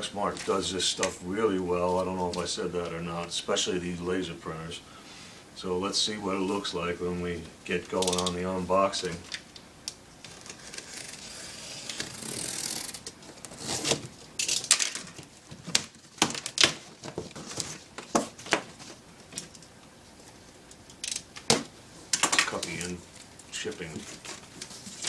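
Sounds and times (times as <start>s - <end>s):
box cutter slitting tape: 10.3s - 14.9s.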